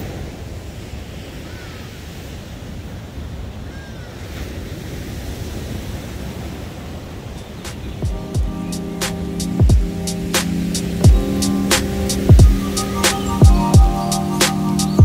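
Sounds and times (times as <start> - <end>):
ocean surf breaking on beach: 0.0 - 15.0
wind buffeting microphone: 0.0 - 15.0
music with drum beat: 7.7 - 15.0.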